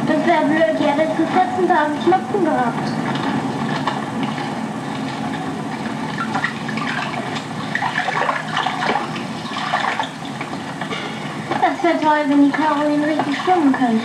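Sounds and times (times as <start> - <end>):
water splashing in pond: 3.8 - 10.7.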